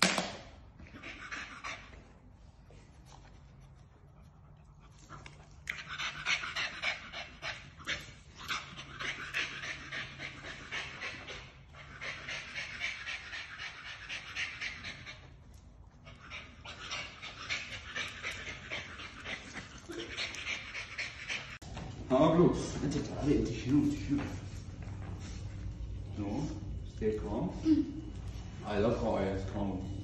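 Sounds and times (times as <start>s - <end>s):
dog panting: 0.8s - 21.6s.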